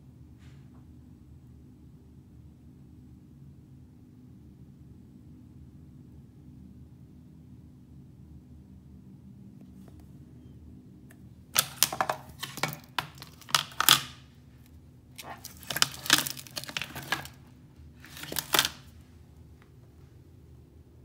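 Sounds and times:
display tearing from adhesive: 11.6 - 14.2, 15.2 - 17.4, 18.0 - 18.9.

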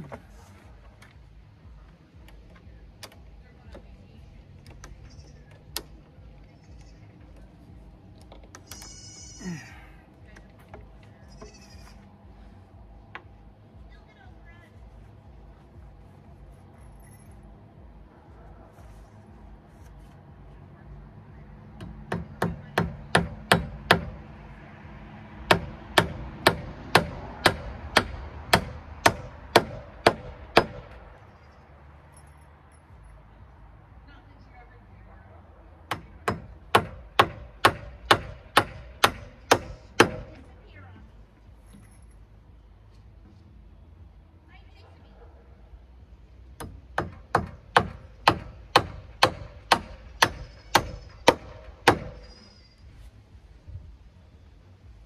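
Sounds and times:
hammer driving nails into wood: 35.9 - 40.3, 46.6 - 52.3.

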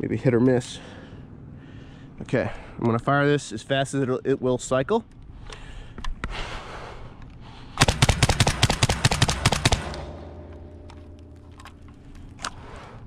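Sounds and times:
rapid suppressed shotgun shots: 7.8 - 11.7.

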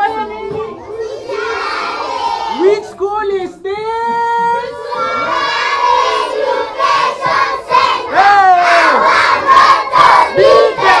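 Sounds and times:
children shouting in unison: 0.7 - 2.6, 4.6 - 11.0.

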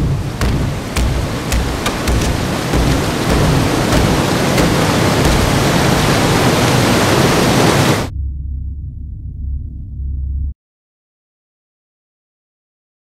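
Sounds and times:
sharp knocks: 0.0 - 6.3
churning white water roar: 0.0 - 8.1.

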